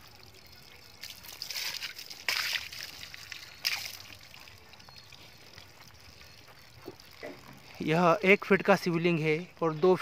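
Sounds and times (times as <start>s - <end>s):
water splashing onto stone: 0.0s - 6.0s.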